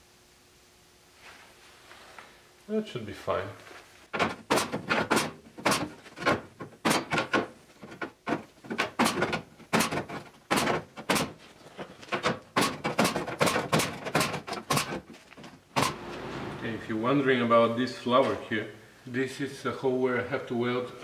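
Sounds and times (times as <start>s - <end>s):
pneumatic punch snapping through steel: 4.2s - 6.0s
short hiss of air: 15.8s - 17.1s.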